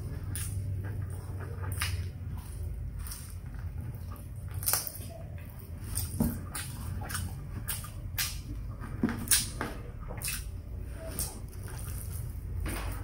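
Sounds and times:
mouth eating sounds: 0.0 - 12.6
lip and tongue smacks: 10.2 - 12.0.

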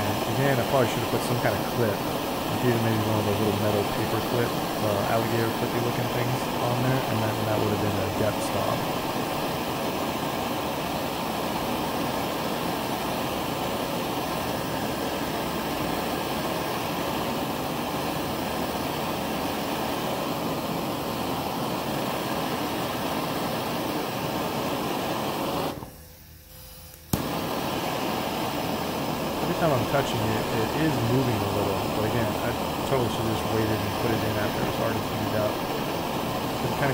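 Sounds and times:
gas torch hissing: 0.0 - 36.9.

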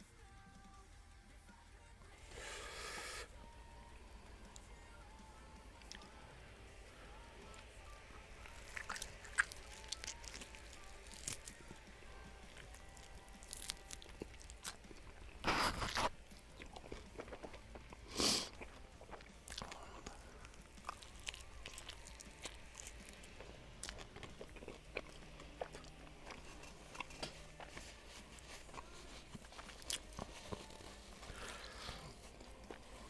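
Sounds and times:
person chewing chicken wing: 8.4 - 11.8, 12.4 - 33.0.

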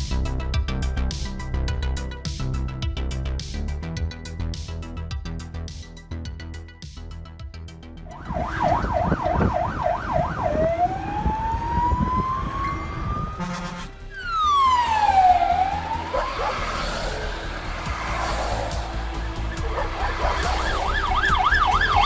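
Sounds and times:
background music: 0.0 - 22.0
fire engine sirens: 8.1 - 22.0
engine rumble: 10.6 - 22.0.

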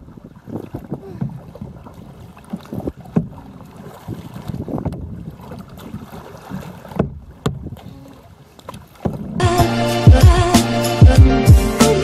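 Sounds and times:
wind buffeting microphone: 0.0 - 9.5
water splashing against kayak hull: 0.0 - 11.2.

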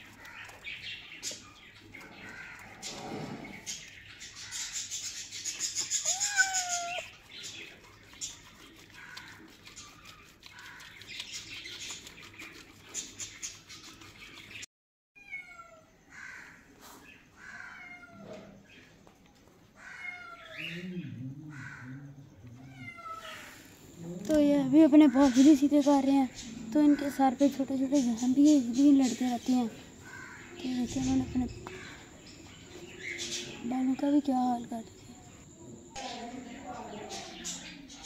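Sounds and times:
birds chirping: 0.0 - 14.7, 19.8 - 38.0
kitten meowing: 6.0 - 7.1.

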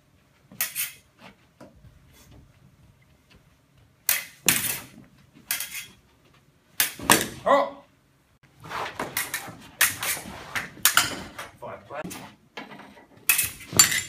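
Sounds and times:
fencing blades clashing: 0.5 - 1.2, 4.0 - 6.1, 6.7 - 7.4, 9.0 - 11.6, 12.7 - 14.0.

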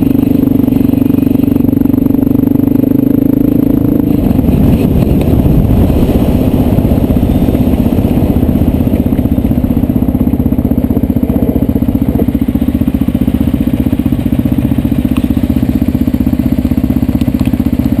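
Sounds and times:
motorcycle engine idling: 0.0 - 18.0
tyres on gravel: 4.1 - 18.0.

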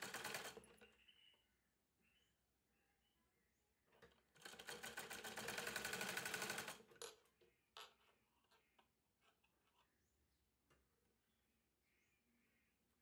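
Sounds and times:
sewing machine running fast: 0.0 - 0.6, 4.5 - 6.8.

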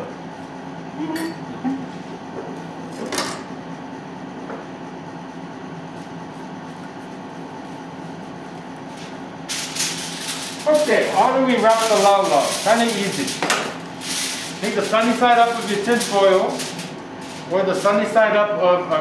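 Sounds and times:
kitchen machine hum: 0.0 - 19.0
leaves handling noises: 8.8 - 18.1.

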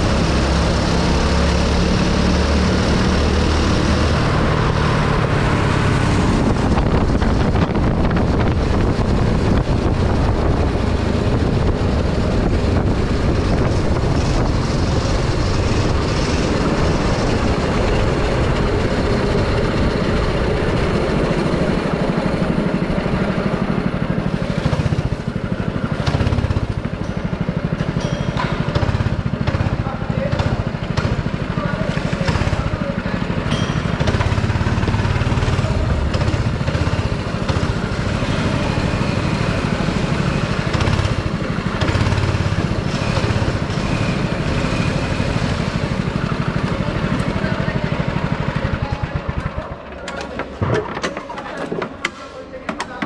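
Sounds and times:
go-kart engine running hard: 0.0 - 53.0
wind rushing on microphone: 4.2 - 23.2.

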